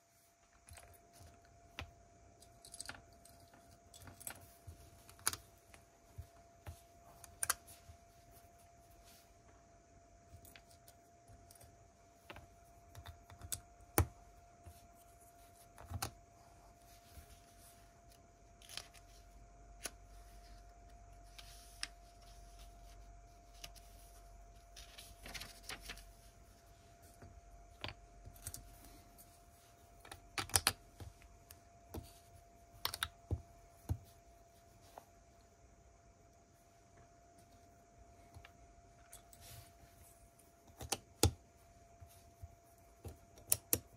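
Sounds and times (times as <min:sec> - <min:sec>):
plastic pieces clicking and clattering: 0:02.4 - 0:04.4.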